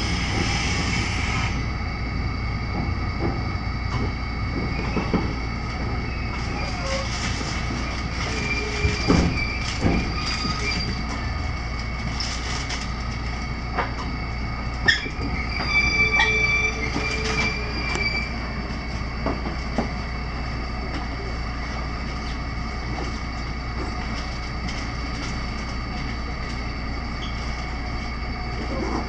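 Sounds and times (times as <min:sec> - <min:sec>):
train running rumble: 0:00.0 - 0:29.0
train wheels squealing: 0:04.5 - 0:07.4, 0:08.1 - 0:11.4, 0:14.8 - 0:18.9.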